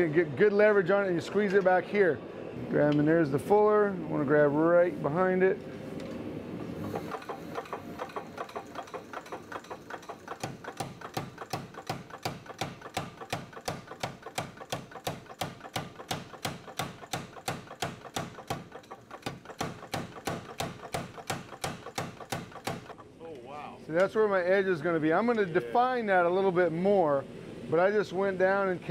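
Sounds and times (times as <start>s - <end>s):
power hammer striking hot steel: 6.8s - 23.0s.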